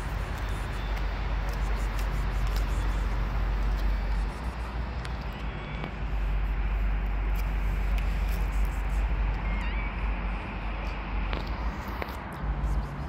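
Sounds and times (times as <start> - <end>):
street ambience rumble: 0.0 - 13.0.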